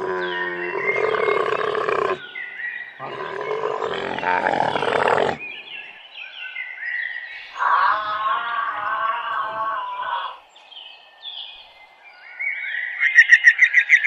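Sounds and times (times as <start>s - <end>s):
harsh wild animal calls: 0.0s - 2.4s, 3.0s - 5.5s, 7.5s - 10.4s.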